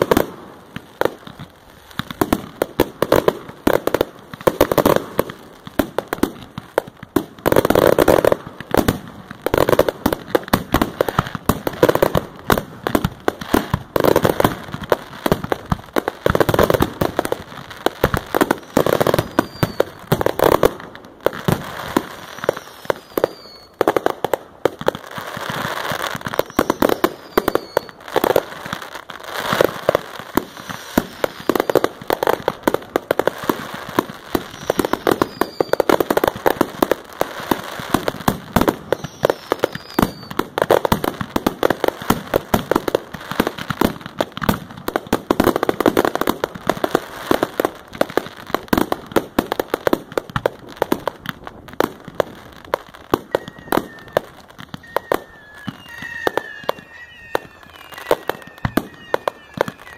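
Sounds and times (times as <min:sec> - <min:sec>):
fireworks crackling: 0:00.0 - 0:59.9
fireworks shells bursting: 0:18.0 - 0:20.8, 0:26.0 - 0:28.4, 0:34.4 - 0:36.2, 0:38.9 - 0:40.4, 0:53.1 - 0:59.9.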